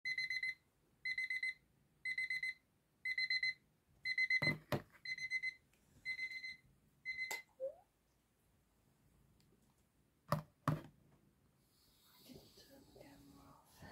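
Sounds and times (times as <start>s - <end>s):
alarm clock beeping: 0.1s - 7.4s.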